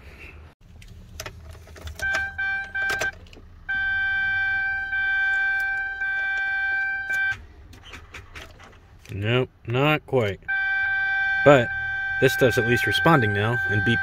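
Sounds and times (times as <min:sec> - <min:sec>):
dashboard warning beeps: 0:02.0 - 0:07.4, 0:10.4 - 0:14.0
long steady warning tone: 0:02.0 - 0:07.4, 0:10.5 - 0:14.0.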